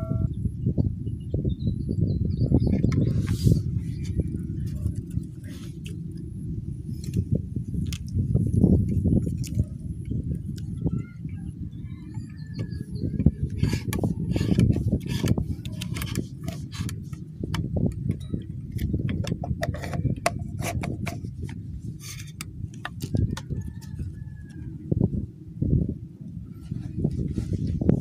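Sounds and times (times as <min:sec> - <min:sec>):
wind buffeting microphone: 0:00.0 - 0:28.0
faint bird chirps: 0:10.1 - 0:13.7
rustling and clicking handling noise: 0:12.6 - 0:24.7.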